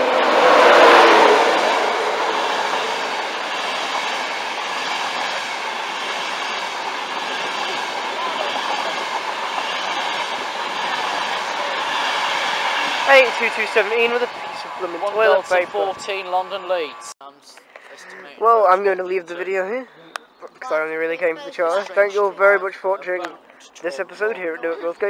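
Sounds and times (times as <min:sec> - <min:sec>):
electric locomotive passing: 0:00.0 - 0:17.2
coaches rolling past: 0:00.0 - 0:25.0.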